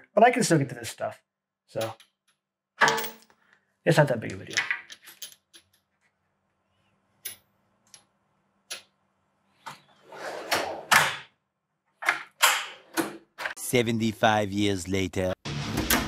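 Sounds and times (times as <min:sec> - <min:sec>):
metal sockets clinking: 0:04.4 - 0:05.9
toolbox drawer rolling shut: 0:10.0 - 0:11.2.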